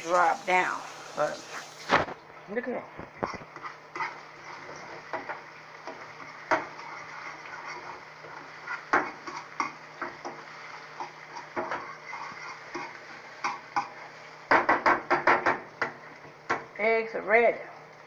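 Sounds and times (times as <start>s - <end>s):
utensil tapping and scraping pan: 3.2s - 16.7s.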